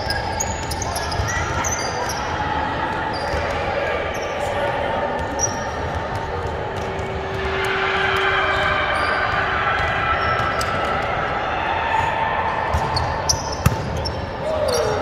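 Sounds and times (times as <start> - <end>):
hum of gym hall: 0.0 - 15.0
basketball bounces: 12.7 - 14.2.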